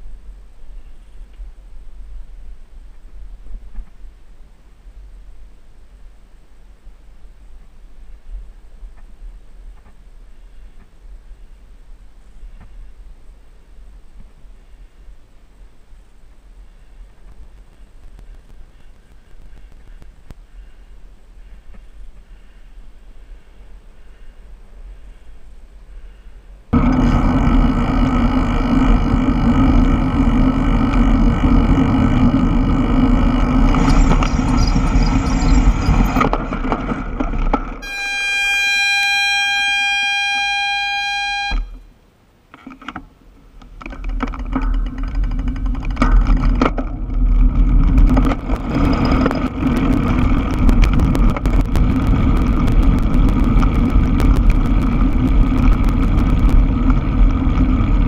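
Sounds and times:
road and wind rumble: 0.0 - 37.8, 41.9 - 58.0
bicycle brakes squealing: 32.7 - 36.3, 37.8 - 41.8.

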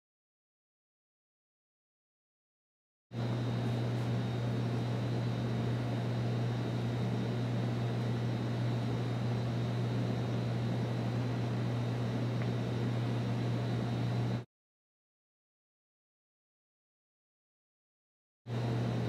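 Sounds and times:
low room hum with hiss: 3.2 - 14.4, 18.5 - 19.0.

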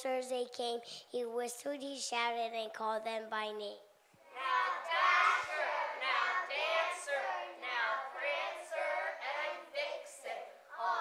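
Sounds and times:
children reciting in unison: 4.2 - 11.0.

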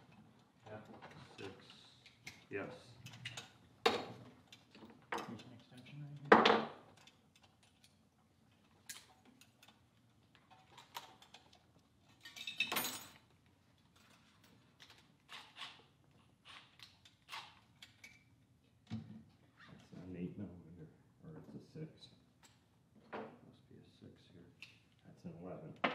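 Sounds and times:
metal tools clinking on workbench: 12.1 - 13.3.

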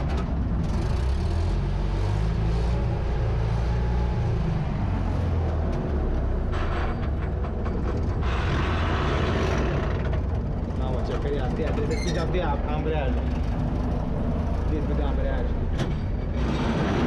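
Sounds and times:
cab rattling: 9.4 - 17.0.

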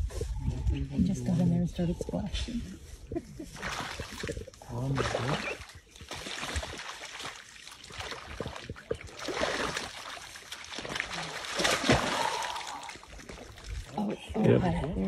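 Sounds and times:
splashing in muddy water: 3.5 - 14.4.

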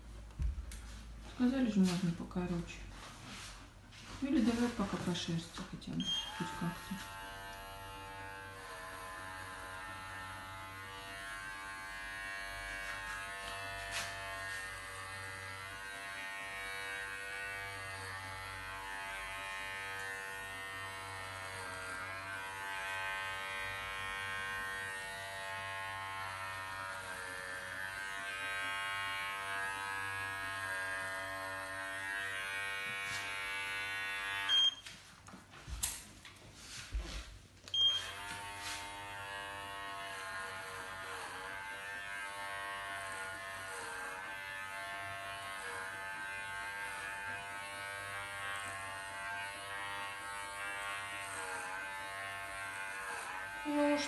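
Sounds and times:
electric pet clipper humming: 6.0 - 34.8, 37.7 - 54.0.

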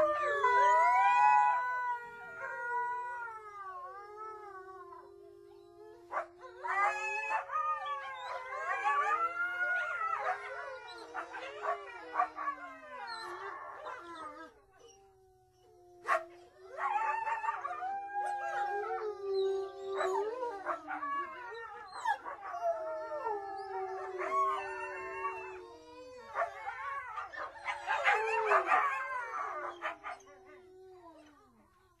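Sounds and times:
wolves howling: 0.0 - 32.0
wolves yipping and barking: 6.0 - 15.0, 16.0 - 30.6.

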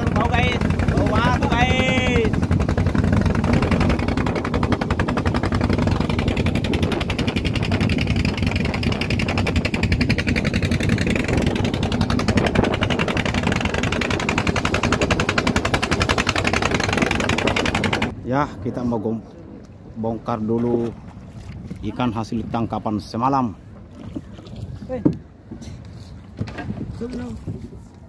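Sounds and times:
boat engine running: 0.0 - 18.2.

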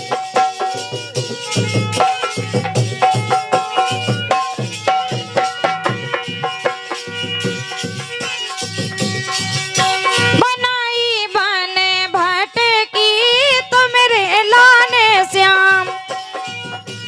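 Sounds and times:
repeating drum beat: 0.0 - 10.8, 12.1 - 17.0
wavering ornamented melody: 0.0 - 11.0.

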